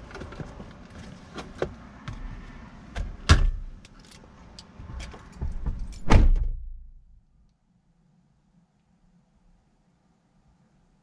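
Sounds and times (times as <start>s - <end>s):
car door slamming: 3.0s - 3.7s, 5.4s - 6.9s.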